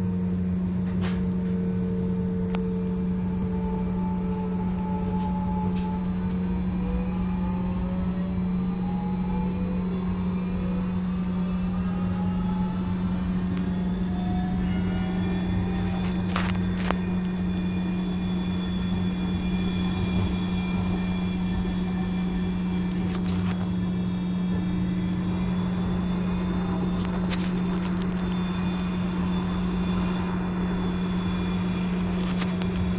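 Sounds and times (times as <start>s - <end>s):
streetcar cabin hum and rumble: 0.0s - 32.9s.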